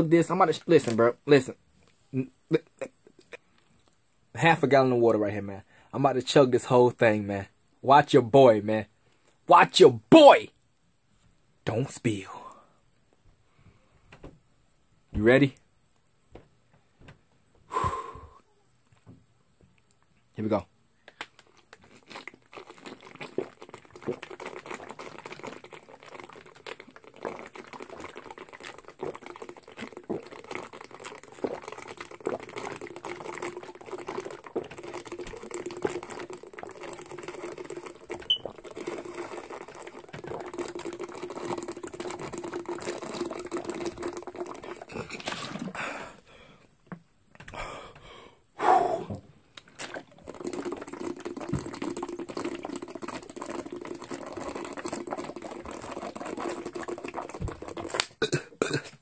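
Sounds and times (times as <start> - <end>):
person gulping water: 21.4 - 46.3, 46.9 - 59.0.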